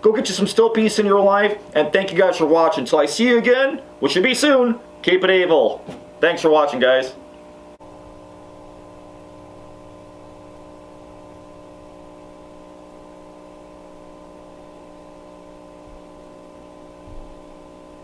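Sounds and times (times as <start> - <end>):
droning hum of held tones: 0.0 - 18.0
faint low thump: 17.0 - 17.4.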